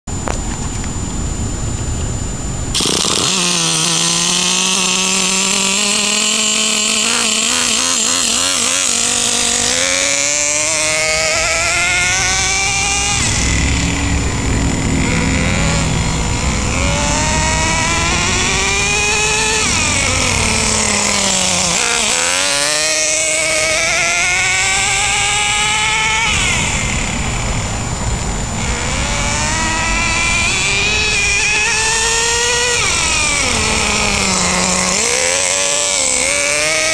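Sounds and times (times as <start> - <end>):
small nitro engine whining: 0.1 - 36.9.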